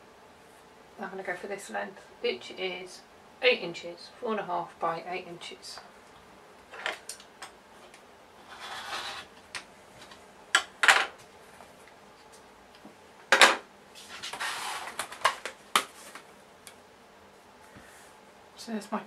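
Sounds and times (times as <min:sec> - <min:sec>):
fabric rustling and scraping: 0:08.4 - 0:09.3, 0:14.0 - 0:15.0.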